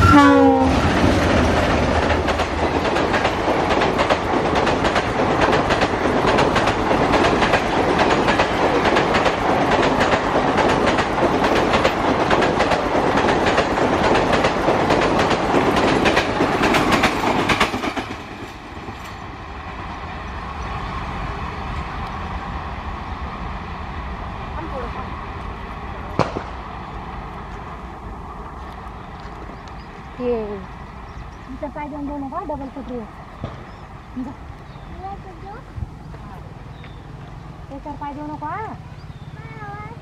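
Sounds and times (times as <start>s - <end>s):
train rumble: 0.0s - 40.0s
train wheels clattering: 0.7s - 19.4s.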